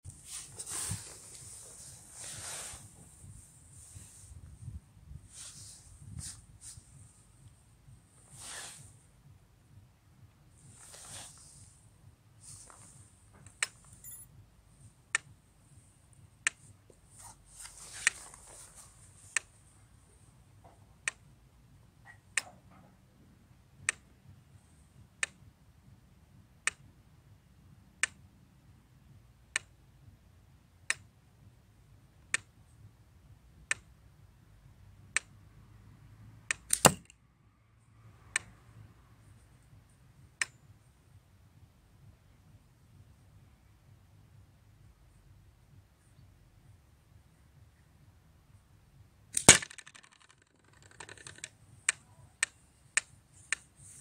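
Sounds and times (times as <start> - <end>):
steel ball striking target: 36.8 - 37.1.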